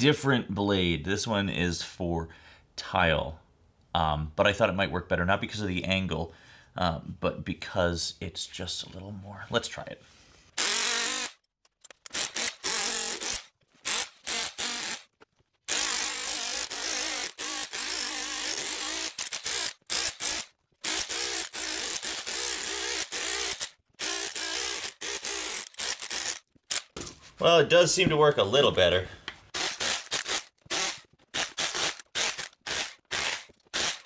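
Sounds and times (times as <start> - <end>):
power tool blade running: 10.6 - 11.4, 12.0 - 15.1, 15.7 - 27.0, 29.5 - 34.0.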